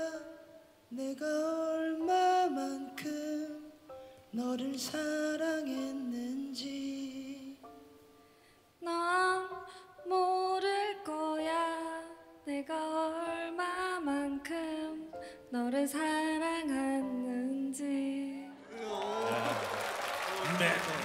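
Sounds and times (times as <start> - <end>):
man singing into microphone: 0.0 - 3.8, 4.4 - 7.6.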